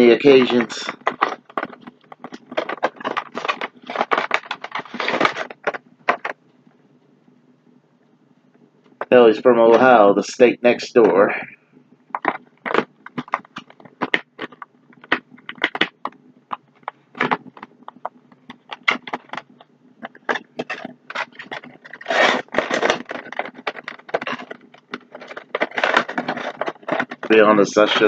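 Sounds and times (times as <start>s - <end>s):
plastic packaging crinkling: 0.0s - 6.4s, 12.2s - 28.0s.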